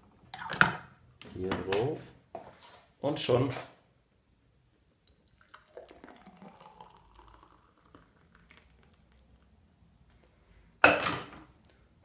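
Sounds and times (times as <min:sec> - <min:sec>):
smoothie pouring into glass: 0:05.1 - 0:09.7.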